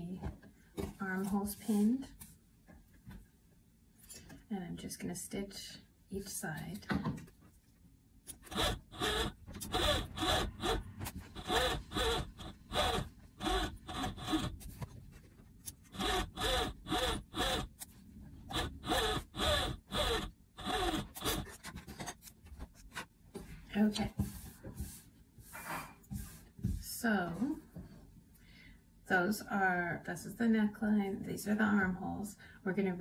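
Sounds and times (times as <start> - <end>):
overlocker stitching in bursts: 8.3 - 14.7, 15.8 - 17.8, 18.4 - 21.5.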